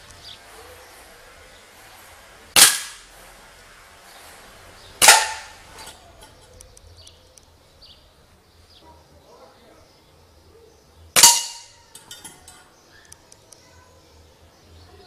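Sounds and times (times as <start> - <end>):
air rifle shots: 2.6 - 3.1, 5.0 - 5.6, 11.2 - 11.8.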